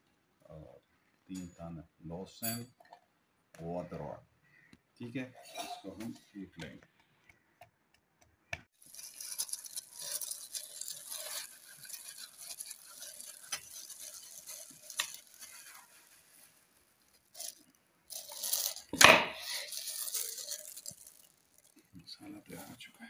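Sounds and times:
pestle grinding in wooden mortar: 8.8s - 16.1s.

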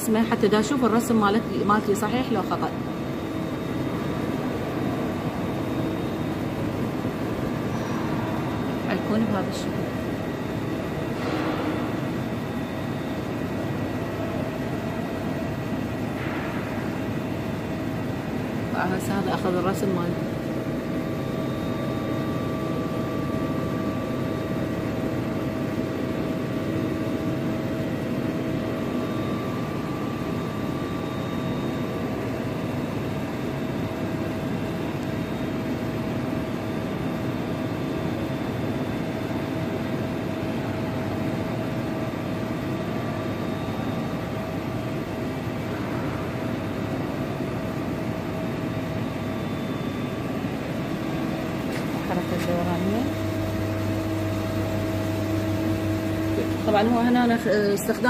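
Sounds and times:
lathe machine hum: 50.2s - 58.0s.

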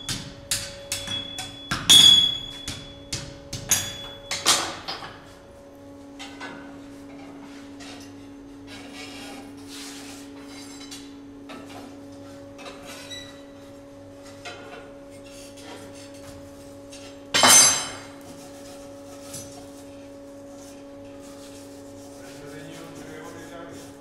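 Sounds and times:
steady machine hum: 0.0s - 24.0s
ringing clang of metal on metal: 0.9s - 4.8s, 17.4s - 18.1s.

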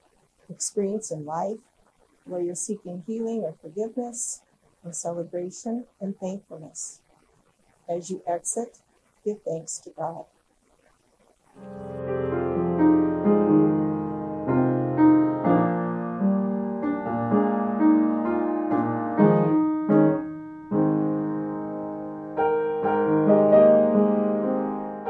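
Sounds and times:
piano notes and chords: 11.6s - 25.0s.

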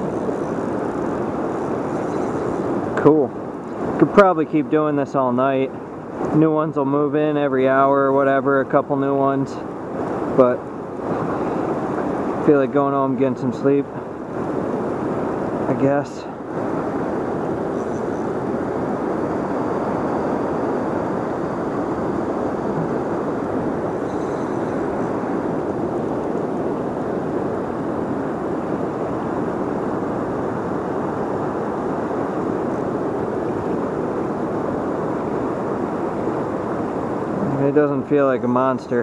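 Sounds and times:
river water rushing through dam: 9.4s - 39.0s.

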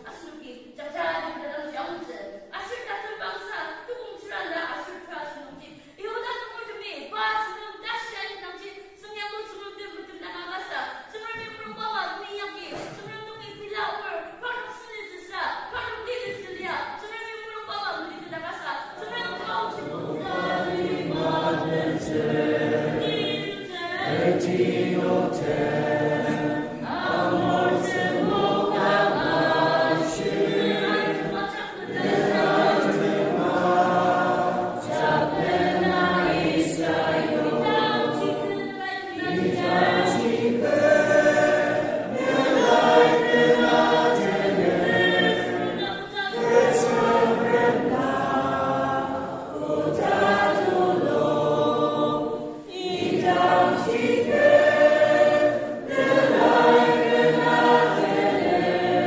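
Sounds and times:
choir singing a hymn: 18.8s - 59.0s.

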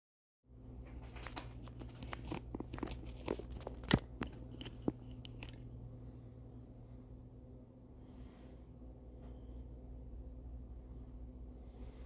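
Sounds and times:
steady low hum: 0.5s - 12.0s
small clicks and crackles: 0.9s - 5.7s.

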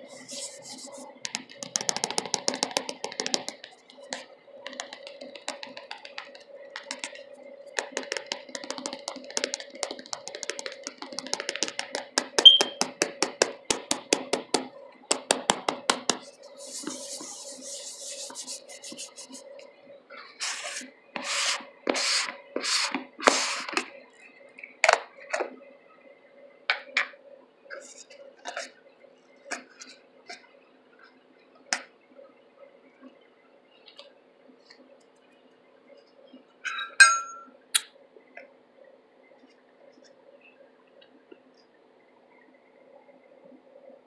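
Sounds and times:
fingers tapping on plastic: 1.2s - 16.2s.

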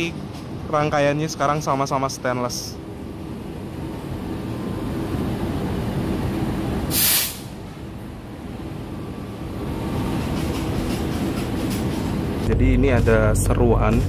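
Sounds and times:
train rumbling on rails: 0.0s - 14.0s
short loud hiss: 6.9s - 7.6s.

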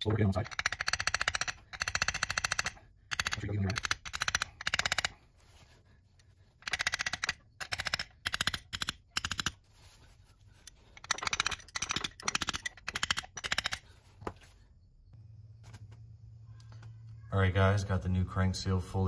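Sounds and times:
rapid metallic tapping: 0.4s - 5.2s.

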